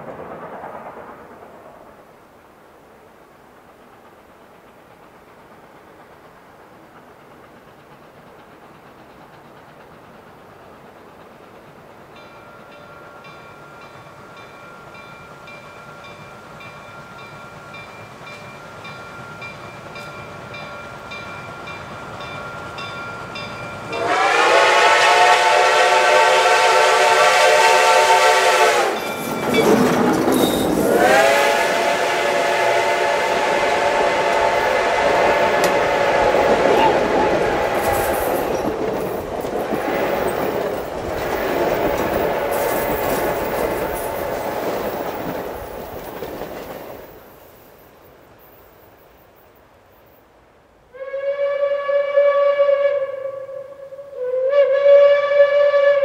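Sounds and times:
steam locomotive rumble: 0.0s - 50.0s
steam whistle blast: 23.9s - 29.2s, 30.5s - 38.6s, 50.9s - 56.0s.

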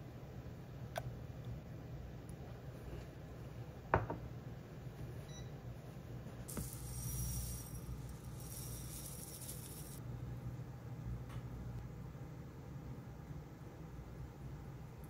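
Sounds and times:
seeds pouring into a dish: 6.5s - 10.0s.

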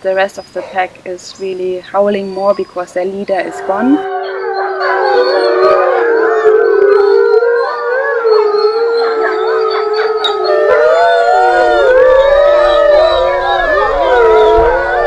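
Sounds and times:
wolves howling in chorus: 3.2s - 15.0s.

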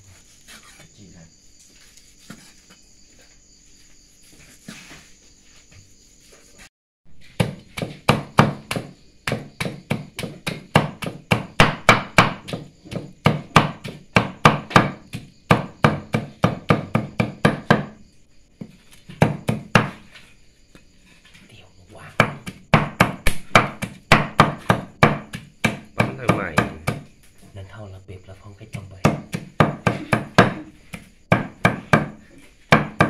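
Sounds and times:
knife chopping on wooden board: 7.2s - 18.0s, 18.6s - 20.2s, 22.1s - 27.1s, 28.7s - 33.0s.

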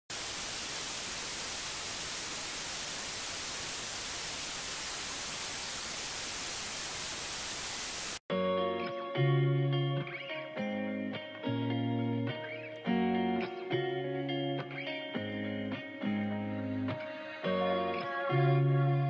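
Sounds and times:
static hiss: 0.1s - 8.2s
guitar music: 8.3s - 19.0s.

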